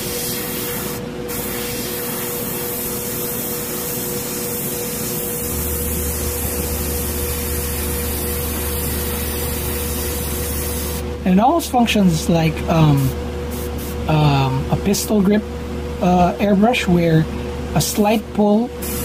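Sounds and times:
airbrush spraying hiss: 0:00.0 - 0:11.1, 0:13.0 - 0:14.1, 0:18.8 - 0:19.0
steady hum: 0:00.0 - 0:19.0
low hum: 0:04.2 - 0:17.8.

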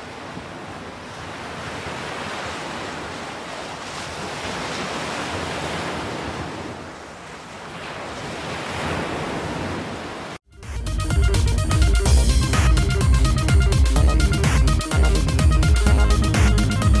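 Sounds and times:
sea water splashing: 0:00.0 - 0:10.4.

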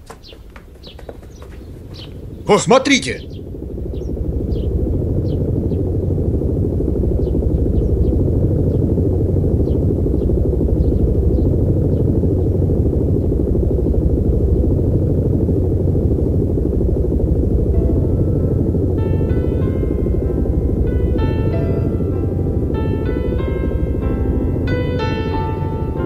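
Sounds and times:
airship engines droning: 0:00.0 - 0:26.0
faint bird chirps: 0:00.1 - 0:05.4.

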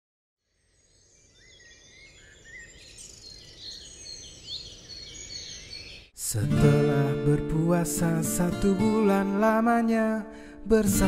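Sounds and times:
birds chirping: 0:00.5 - 0:06.2.

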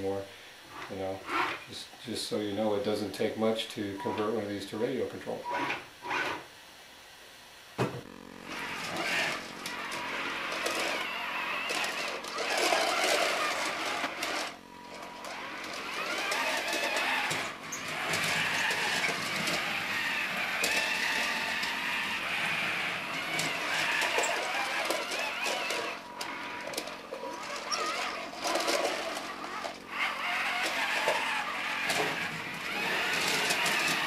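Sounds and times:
toy robot motors whirring: 0:00.7 - 0:01.7, 0:05.4 - 0:06.4, 0:08.4 - 0:34.0.

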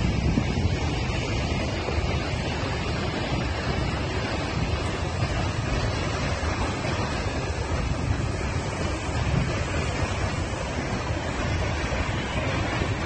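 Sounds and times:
waterfall roaring: 0:00.0 - 0:13.0
wind buffeting microphone: 0:00.0 - 0:13.0.

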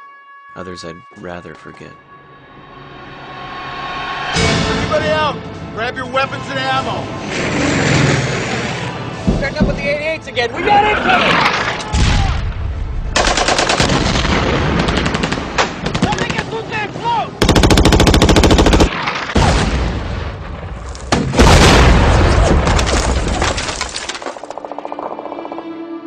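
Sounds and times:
machine-gun fire bursts: 0:13.2 - 0:16.4, 0:17.4 - 0:19.1.

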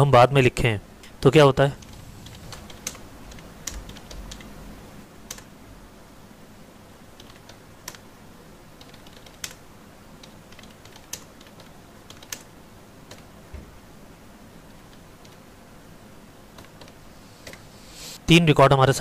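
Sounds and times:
keyboard keystroke clicks: 0:10.2 - 0:12.5.

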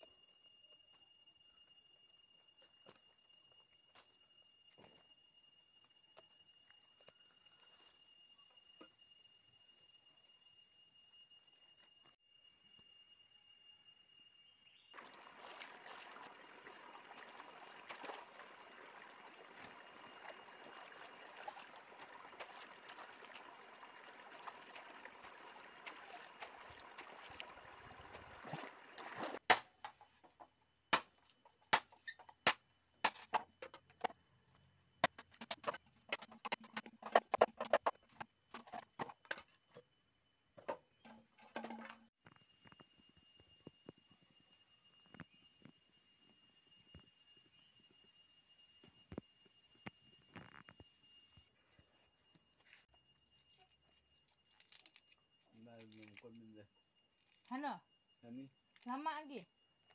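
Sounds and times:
legs splashing in water: 0:15.0 - 0:29.4
stream water washing around legs: 0:15.0 - 0:29.4.

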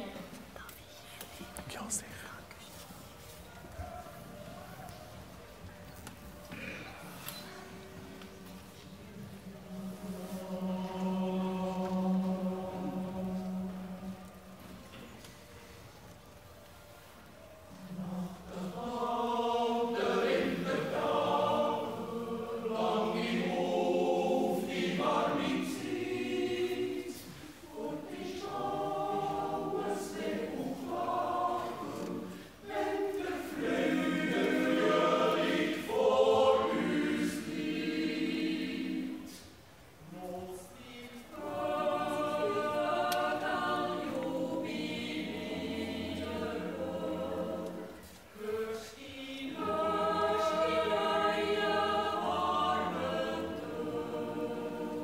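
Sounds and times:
choir yodeling a cappella: 0:06.4 - 0:16.2, 0:17.0 - 0:55.0.

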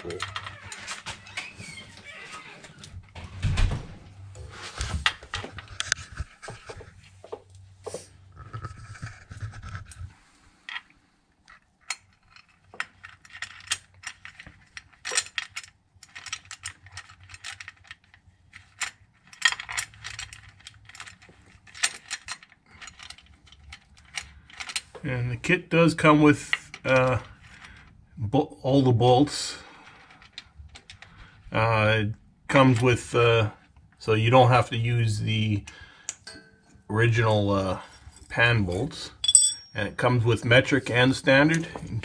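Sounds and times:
metal clinks: 0:36.2 - 0:36.7, 0:39.2 - 0:39.9.

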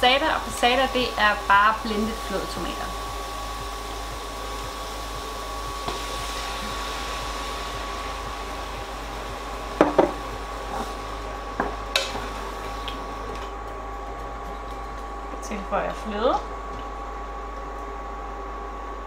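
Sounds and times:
induction hob whirring whine: 0:00.0 - 0:19.0
knocks against a pot: 0:09.8 - 0:10.2.

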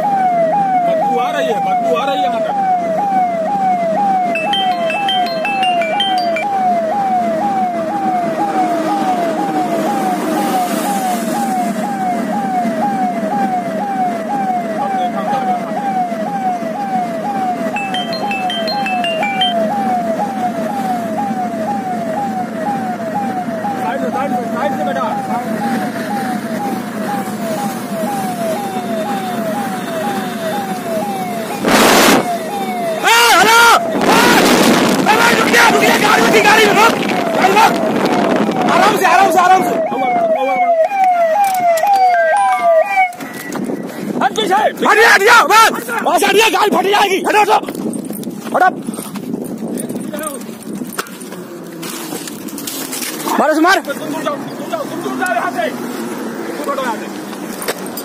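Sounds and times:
police siren: 0:00.0 - 0:47.6
road noise: 0:00.0 - 0:58.0
vehicle driving hum: 0:45.6 - 0:58.0.

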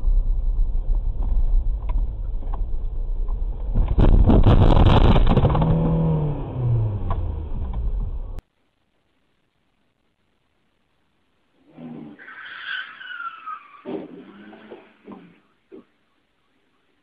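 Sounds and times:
falling low tone: 0:00.0 - 0:08.4
engine and road rumble: 0:00.0 - 0:08.5
crackling and scraping brush: 0:03.6 - 0:06.0
car crash: 0:03.7 - 0:06.0.

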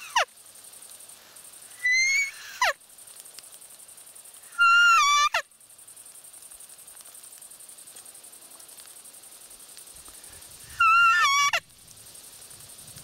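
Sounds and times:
deer call whistle: 0:10.7 - 0:11.6.

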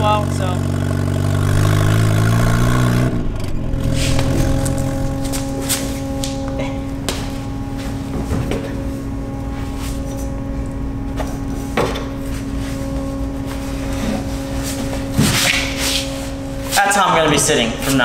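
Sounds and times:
car engine running: 0:00.0 - 0:18.0
car body knocks and clatters: 0:07.0 - 0:08.8, 0:11.2 - 0:12.2.

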